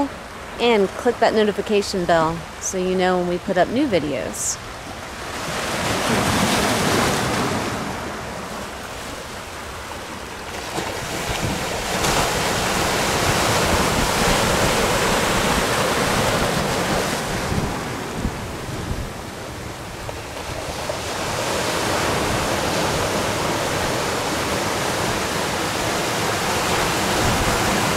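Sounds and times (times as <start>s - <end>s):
ocean waves breaking: 0.0s - 27.9s
wind rumbling on microphone: 10.8s - 27.9s.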